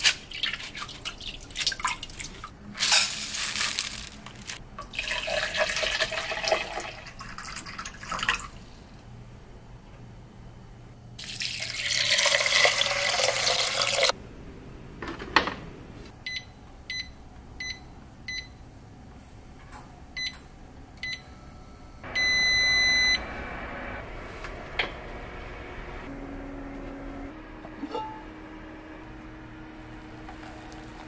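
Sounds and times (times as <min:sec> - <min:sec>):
water pouring into pot: 0:04.8 - 0:08.6, 0:11.2 - 0:14.1
long beep: 0:21.0 - 0:23.2
touch panel beeps: 0:22.2 - 0:23.2.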